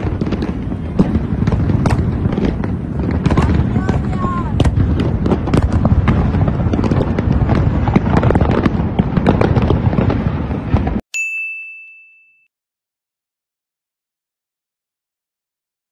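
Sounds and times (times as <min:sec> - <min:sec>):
fireworks bangs and crackles: 0:00.0 - 0:11.0
bright chime ringing: 0:11.1 - 0:12.5.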